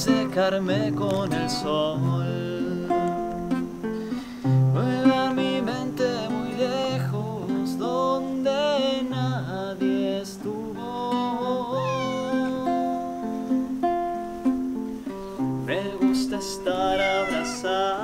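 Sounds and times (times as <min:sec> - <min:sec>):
classical guitar strumming: 0:00.0 - 0:18.0
cat meowing: 0:11.7 - 0:13.0, 0:16.7 - 0:18.0.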